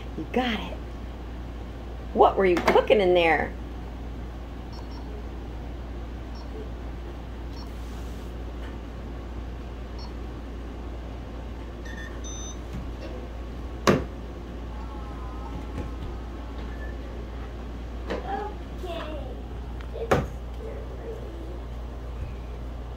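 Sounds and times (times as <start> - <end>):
steady low hum: 0.0 - 22.9
short electronic beeps: 4.7 - 5.1, 6.3 - 6.5, 11.8 - 12.6.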